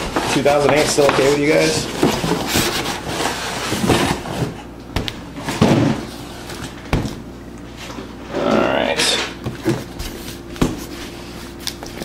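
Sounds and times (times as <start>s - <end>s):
cardboard box scraping and rustling: 0.1s - 4.7s.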